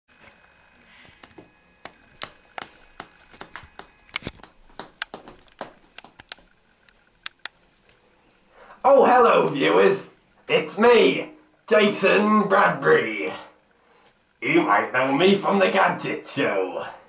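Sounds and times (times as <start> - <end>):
keyboard typing clicks: 0.3 - 7.6.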